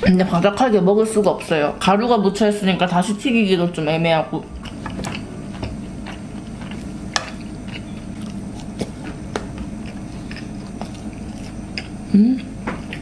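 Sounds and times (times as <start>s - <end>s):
low steady hum: 0.0s - 13.0s
chewing fried food: 4.6s - 13.0s.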